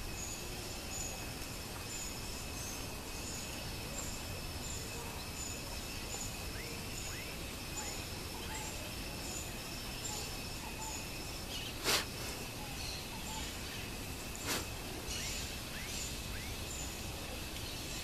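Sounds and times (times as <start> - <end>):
high insect buzz: 9.1 - 17.1.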